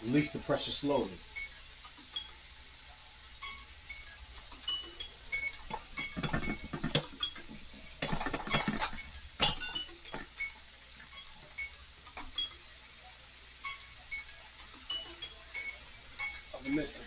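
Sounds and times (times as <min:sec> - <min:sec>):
pressure cooker metallic clinking: 0:03.4 - 0:12.7, 0:13.6 - 0:17.0.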